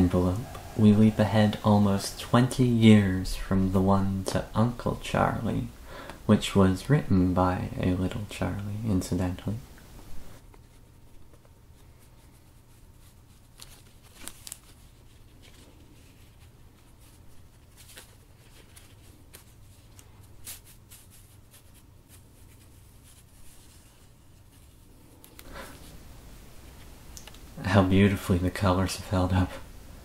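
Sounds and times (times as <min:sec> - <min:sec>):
paper rustling and crinkling: 0:10.3 - 0:26.0.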